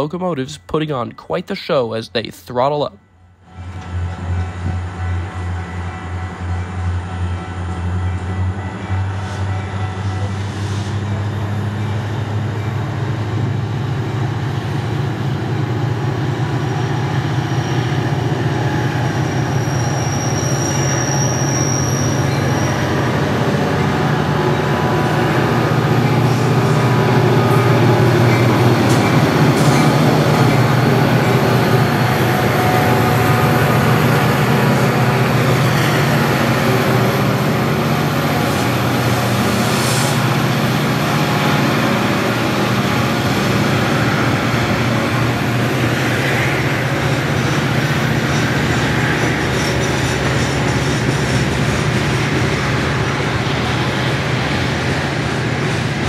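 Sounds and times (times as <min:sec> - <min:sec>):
locomotive engine drone: 0:03.3 - 0:56.0
high wheel squeal: 0:17.4 - 0:23.2, 0:47.4 - 0:52.4.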